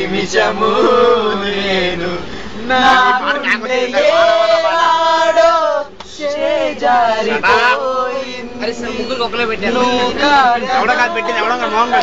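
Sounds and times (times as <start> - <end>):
person singing unaccompanied: 0.0 - 12.0
person breathing: 2.2 - 2.6.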